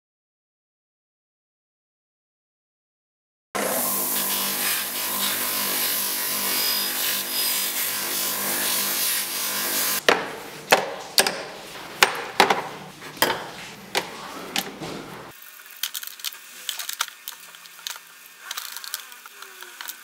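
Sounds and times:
buffing wheel polishing metal: 0:03.6 - 0:15.3
small metal parts clicking: 0:15.7 - 0:20.0.

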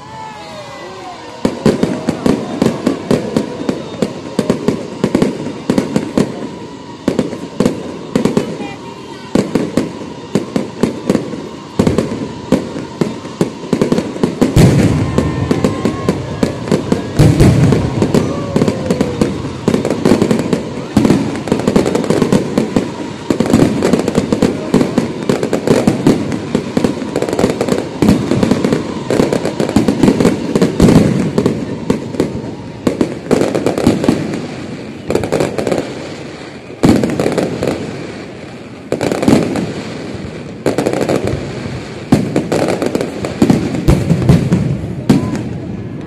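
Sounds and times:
fireworks bangs and crackle: 0:00.0 - 0:46.0.

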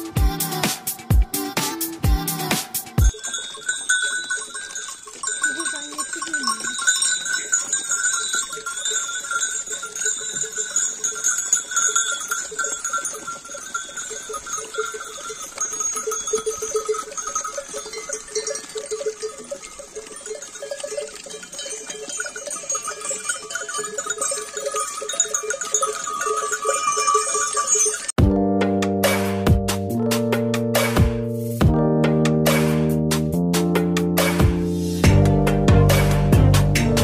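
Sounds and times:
sheep bells jingling: 0:02.2 - 0:28.2.

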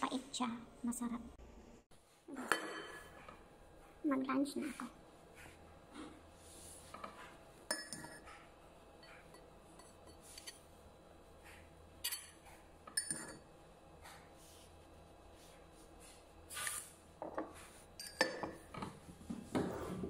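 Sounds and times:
metal spoon clinking on ceramic plate: 0:07.7 - 0:08.2, 0:12.0 - 0:13.5, 0:18.0 - 0:18.6.

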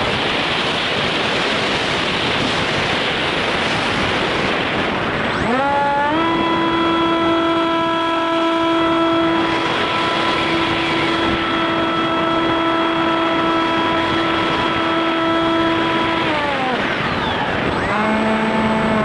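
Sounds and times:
wind rushing: 0:00.0 - 0:19.0
model plane motor and propeller: 0:05.3 - 0:19.0.

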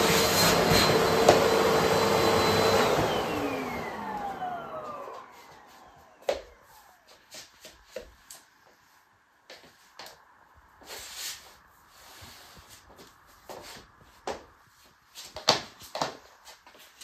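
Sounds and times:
slippers scuffing on hard floor: 0:04.8 - 0:10.2, 0:10.8 - 0:17.0.

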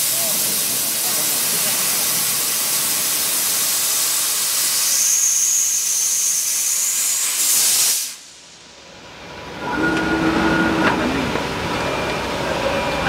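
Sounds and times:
laser cutter gas hiss: 0:00.0 - 0:08.7
thin high whistle: 0:04.8 - 0:07.0.

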